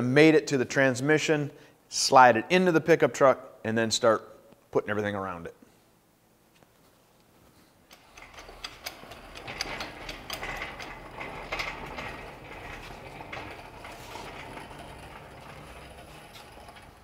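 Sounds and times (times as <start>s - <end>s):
metal frame rattling: 8.0s - 17.0s
casters rolling on concrete: 8.1s - 17.0s.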